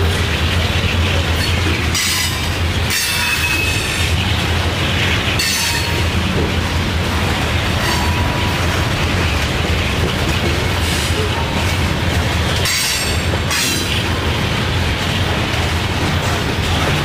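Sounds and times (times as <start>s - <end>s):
diesel locomotive engine drone: 0.0s - 17.0s
train wheel squeals: 1.4s - 4.2s, 5.4s - 6.1s, 12.6s - 14.0s.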